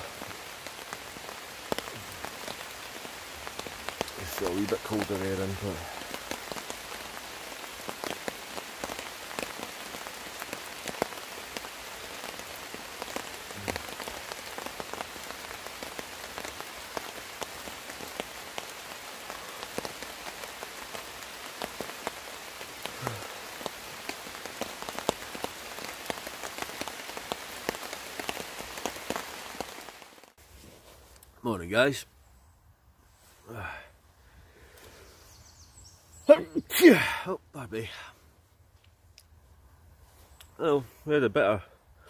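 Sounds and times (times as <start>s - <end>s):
raindrops ticking close by: 0.0s - 30.4s, 40.4s - 40.7s
steady rain: 0.0s - 32.1s, 33.1s - 42.0s.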